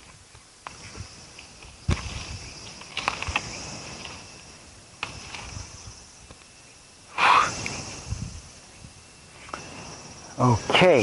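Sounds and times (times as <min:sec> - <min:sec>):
branches snapping and rustling: 0:00.0 - 0:04.3, 0:04.9 - 0:05.6
high insect drone: 0:00.0 - 0:11.0.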